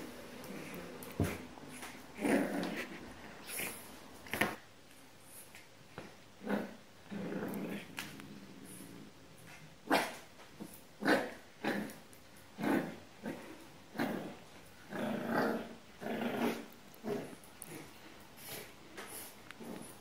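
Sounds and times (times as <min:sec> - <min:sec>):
puppy growling: 0:00.4 - 0:04.6, 0:06.4 - 0:09.2, 0:11.0 - 0:18.7, 0:19.5 - 0:20.0.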